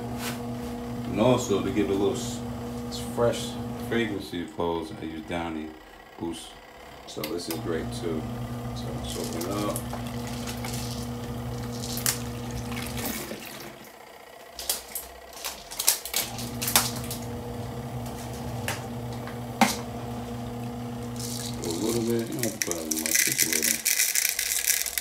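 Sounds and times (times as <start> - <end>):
washing machine motor humming: 0.0 - 25.0
water sloshing and splashing: 9.8 - 17.3.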